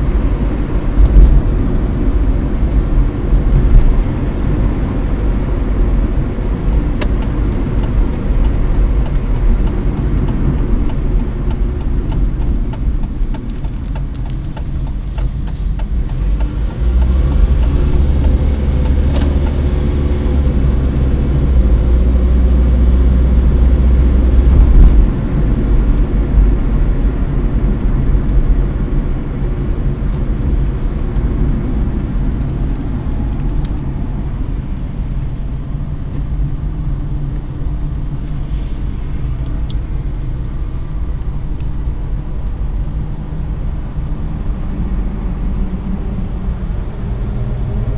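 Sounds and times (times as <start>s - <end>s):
car engine and tyre rumble: 0.0s - 47.9s
light rapid ticks: 6.7s - 19.6s.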